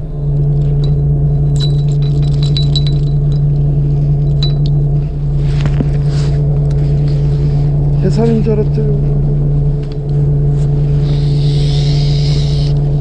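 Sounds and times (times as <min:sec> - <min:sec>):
boat engine humming: 0:00.0 - 0:13.0
short rustle: 0:05.3 - 0:08.0.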